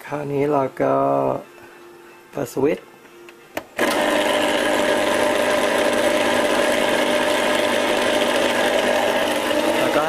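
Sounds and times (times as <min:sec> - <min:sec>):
ice cream maker motor running: 0:03.8 - 0:10.0.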